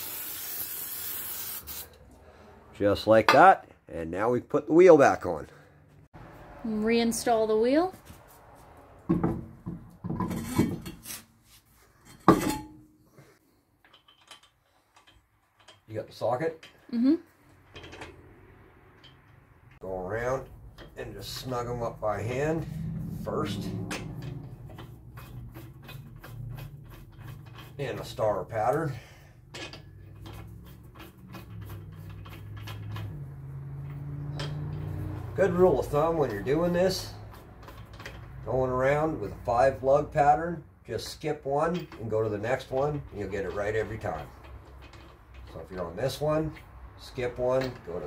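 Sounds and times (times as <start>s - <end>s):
metal clatter and scraping: 9.0s - 16.9s, 17.5s - 48.0s
metallic clicking of lug nuts: 17.5s - 19.8s, 29.4s - 35.2s, 35.8s - 38.4s, 41.6s - 48.0s.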